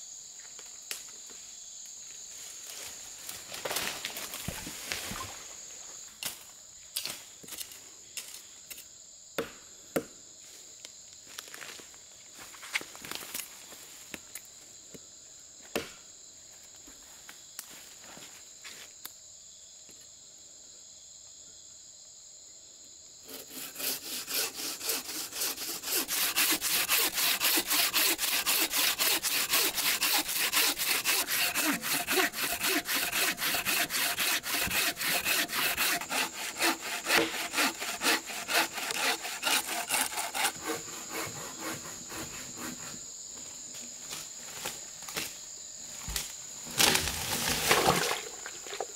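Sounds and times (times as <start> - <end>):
bow saw cutting wood: 23.2 - 43.0.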